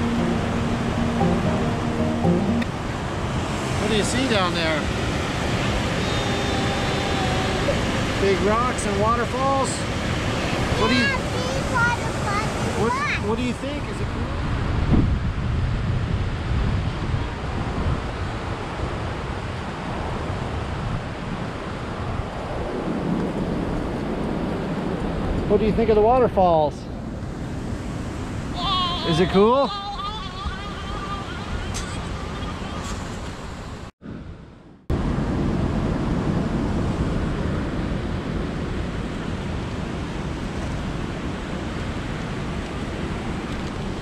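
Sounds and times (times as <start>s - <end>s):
waterfall and whitewater rushing: 0.0s - 13.6s
wind buffeting microphone: 14.2s - 25.5s.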